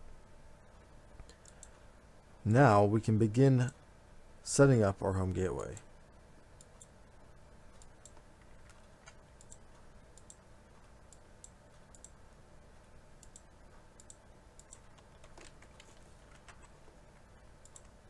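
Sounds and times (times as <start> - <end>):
low room tone hum: 0.0 - 18.0
computer mouse clicks: 1.2 - 1.8, 7.7 - 10.4, 11.1 - 12.2, 13.2 - 16.8, 17.6 - 18.0.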